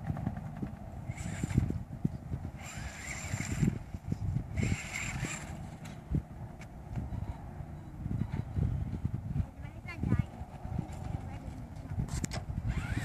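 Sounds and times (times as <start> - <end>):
toy truck motor whining: 1.1 - 1.8, 2.5 - 5.9, 12.1 - 13.0.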